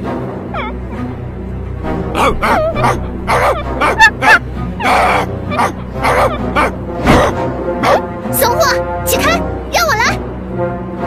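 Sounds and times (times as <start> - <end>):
background music: 0.0 - 11.0
small dog yapping: 2.2 - 8.0.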